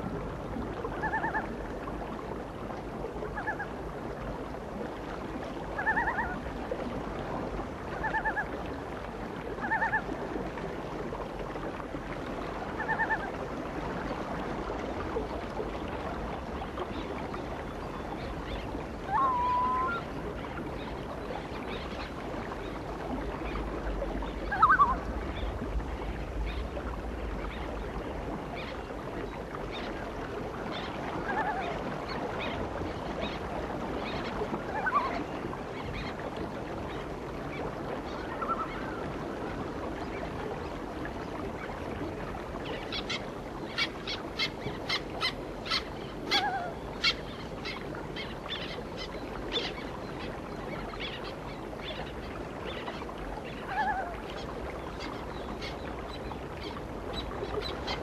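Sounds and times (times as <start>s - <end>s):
bird calls: 19.1s - 20.0s, 24.5s - 25.0s.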